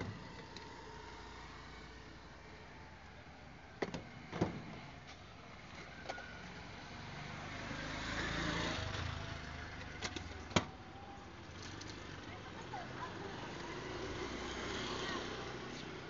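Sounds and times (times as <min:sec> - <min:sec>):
vehicle passing: 0:00.0 - 0:05.1, 0:05.9 - 0:09.9, 0:11.7 - 0:16.0
road traffic: 0:00.0 - 0:16.0.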